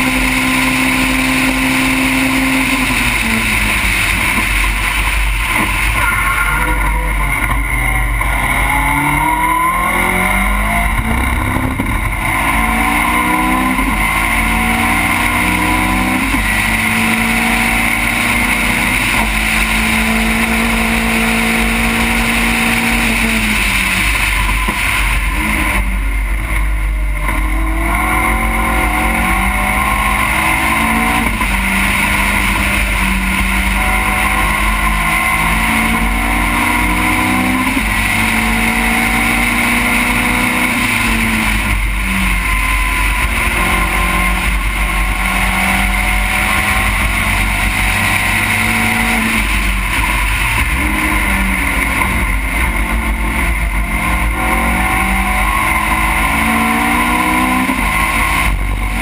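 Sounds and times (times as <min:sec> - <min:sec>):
race car engine accelerating: 0:00.0 - 0:59.0.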